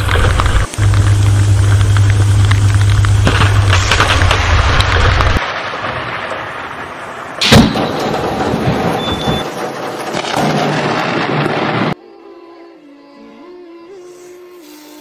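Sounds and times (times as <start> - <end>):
deep low rumble: 0.0 - 5.4
sudden loud crash: 0.0 - 12.0.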